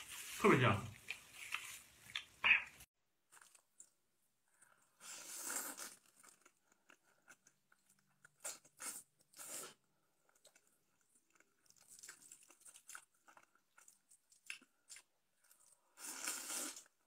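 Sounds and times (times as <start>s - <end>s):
wet chewing clicks: 0.9s - 2.8s
person slurping noodles: 4.8s - 6.5s, 8.5s - 9.9s, 15.8s - 17.0s.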